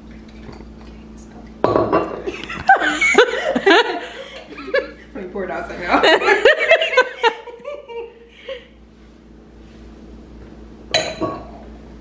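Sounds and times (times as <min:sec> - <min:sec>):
woman laughing: 0:02.3 - 0:05.2, 0:05.8 - 0:08.7
glass clink: 0:10.9 - 0:11.6.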